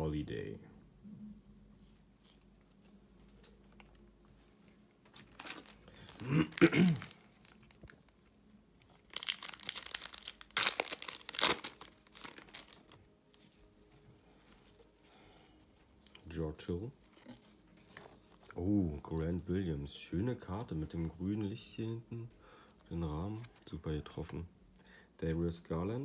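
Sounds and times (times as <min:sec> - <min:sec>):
foil wrapper crinkling: 0:05.1 - 0:08.2, 0:08.9 - 0:13.1
foil wrapper ripping: 0:05.2 - 0:08.0, 0:09.0 - 0:13.0.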